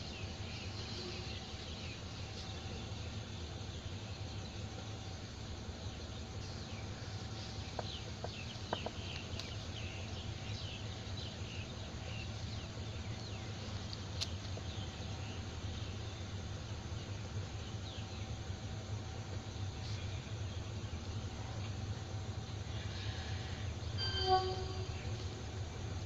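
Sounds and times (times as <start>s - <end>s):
steady low hum: 0.0s - 26.0s
high falling chirps: 24.0s - 25.6s.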